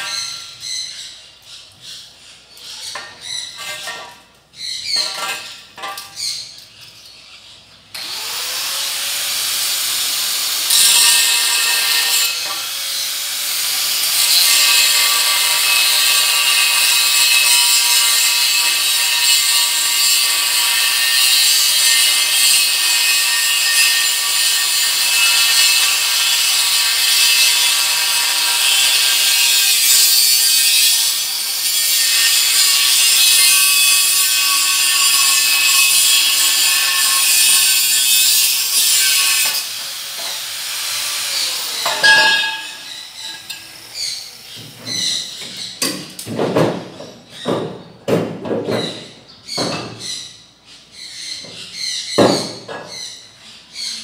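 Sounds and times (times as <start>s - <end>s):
angle grinder grinding steel: 8.0s - 45.8s.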